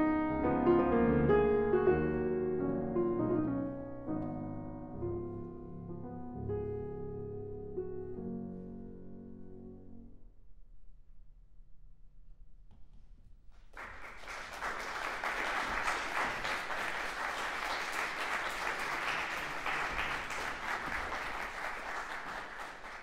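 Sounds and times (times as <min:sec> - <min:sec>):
audience applause: 0:13.8 - 0:23.0.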